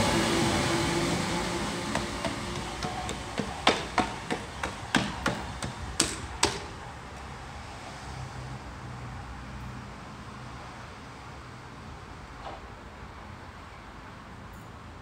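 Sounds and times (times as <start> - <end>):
train wheels clacking over rail joints: 0.0 - 6.9
train rumble: 0.0 - 7.6.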